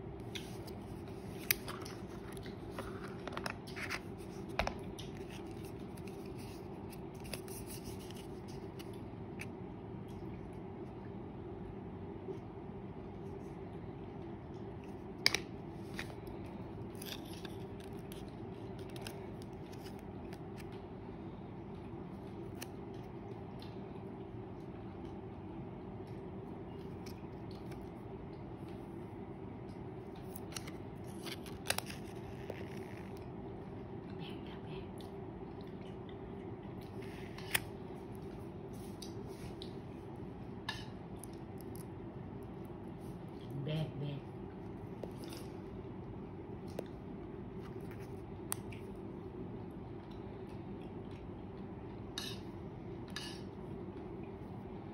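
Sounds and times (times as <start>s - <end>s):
low room hum: 0.0s - 54.9s
hands handling phone and box: 0.4s - 8.9s.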